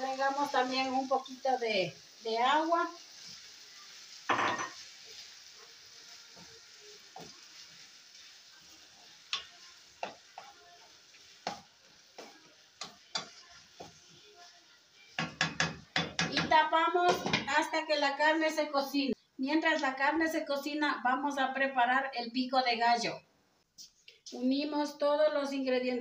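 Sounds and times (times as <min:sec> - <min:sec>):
meat sizzling in a frying pan: 0:00.0 - 0:18.7
wooden spoon knocking on pan: 0:04.3 - 0:04.9, 0:07.1 - 0:07.5, 0:09.3 - 0:10.6, 0:11.2 - 0:14.1, 0:15.1 - 0:17.7.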